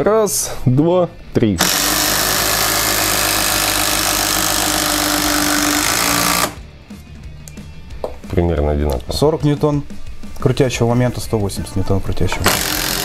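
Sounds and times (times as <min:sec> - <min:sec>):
impact drivers driving screws: 0:01.6 - 0:06.6, 0:12.4 - 0:13.0.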